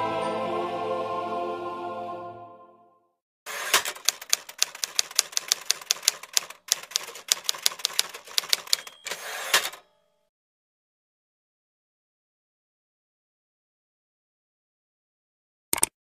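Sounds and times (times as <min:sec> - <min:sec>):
background music: 0:00.0 - 0:03.1
typewriter key clicks: 0:03.7 - 0:09.8.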